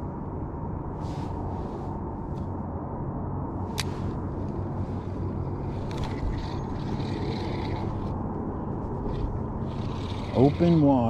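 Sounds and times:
steady low hum: 0.0s - 11.0s
fishing reel gears whirring: 5.8s - 8.1s, 9.2s - 10.9s.

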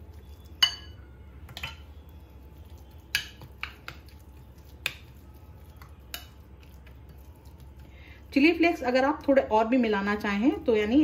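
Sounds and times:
spoon stirring wet mixture: 0.0s - 11.0s
spoon clinking against glass bowl: 0.4s - 1.9s, 3.0s - 4.2s.

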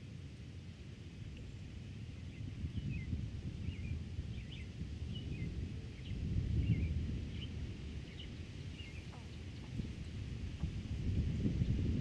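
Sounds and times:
wind blowing across a field: 0.0s - 12.0s
small birds chirping: 2.2s - 10.8s.

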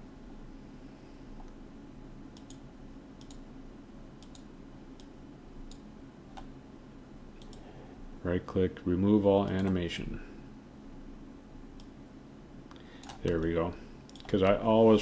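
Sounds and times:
faint low hum: 0.0s - 15.0s
computer mouse clicking: 2.4s - 2.6s, 3.2s - 3.4s, 4.2s - 6.5s, 7.4s - 7.7s, 9.4s - 9.8s, 12.7s - 14.6s.

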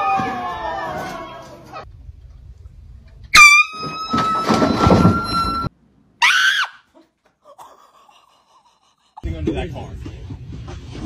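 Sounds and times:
people yelling: 0.0s - 1.8s
shrill scream: 6.2s - 6.9s.

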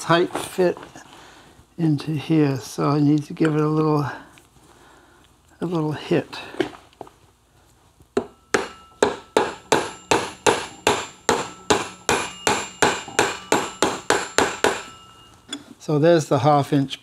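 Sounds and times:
mallet tapping metal tool: 8.2s - 15.7s.

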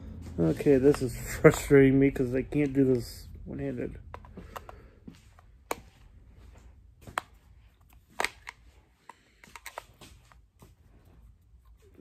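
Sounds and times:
plastic handling noise: 0.4s - 12.0s
sharp plastic clicks: 7.1s - 10.3s.

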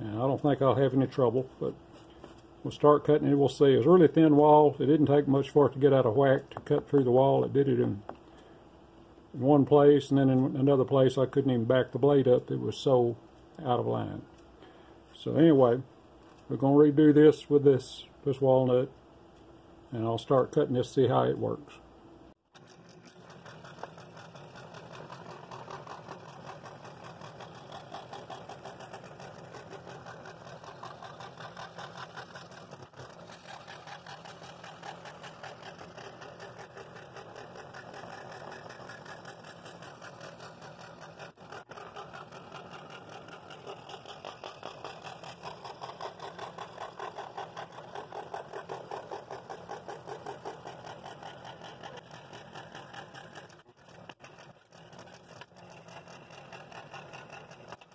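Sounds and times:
scroll saw cutting wood: 22.5s - 57.9s.

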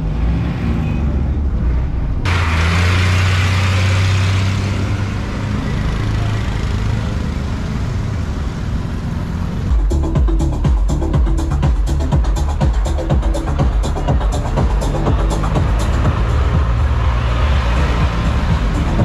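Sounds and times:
auto-rickshaw engine: 0.0s - 19.0s
tyre and road noise: 0.0s - 19.0s
steady low engine hum: 1.2s - 19.0s
car engine running: 1.4s - 19.0s
motor scooter engine: 2.3s - 19.0s.

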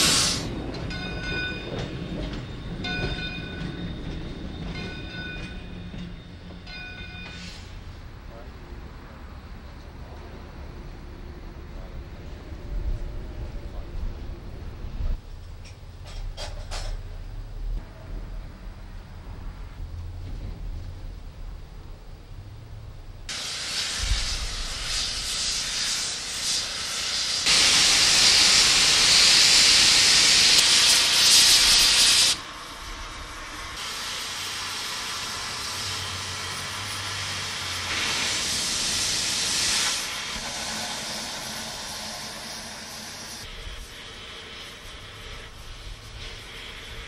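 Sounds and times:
steam hissing from valve: 0.0s - 0.5s, 23.3s - 47.0s.

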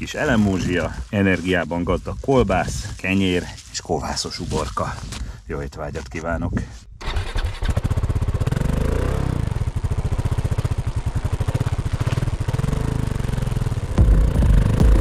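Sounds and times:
motorcycle engine idling: 7.0s - 15.0s.

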